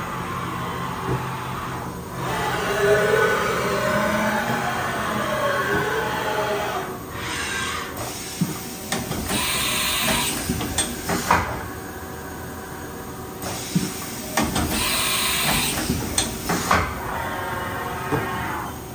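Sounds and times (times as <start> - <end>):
machine hum: 0.0 - 8.0
rising whine: 2.1 - 7.2.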